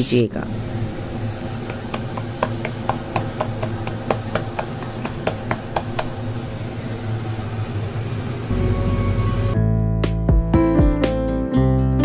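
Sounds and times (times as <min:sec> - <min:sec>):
steady low hum: 0:00.0 - 0:09.6
hands patting dough: 0:01.6 - 0:06.2.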